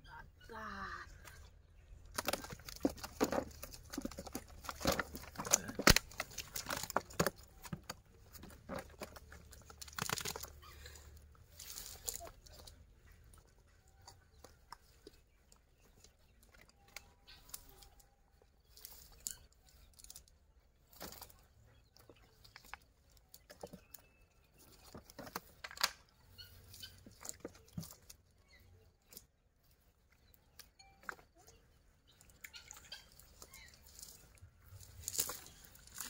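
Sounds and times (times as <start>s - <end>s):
clicks and rustles of a net: 2.0s - 36.0s.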